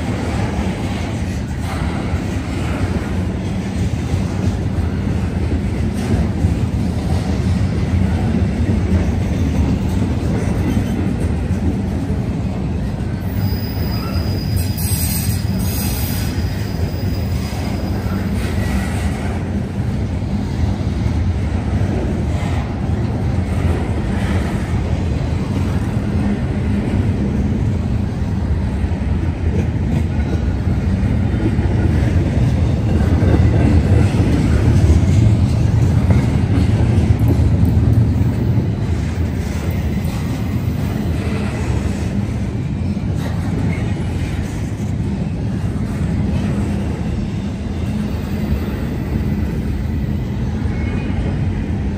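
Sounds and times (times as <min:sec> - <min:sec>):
train wheels rumbling on rails: 0:00.0 - 0:51.9
high wheel squeal: 0:13.2 - 0:18.8.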